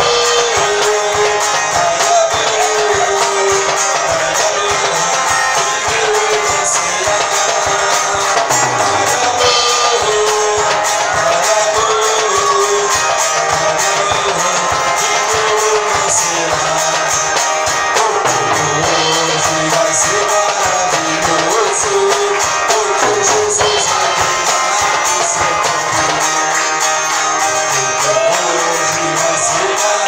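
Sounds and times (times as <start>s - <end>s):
acoustic guitar strumming: 0.0s - 30.0s
man singing: 0.0s - 30.0s.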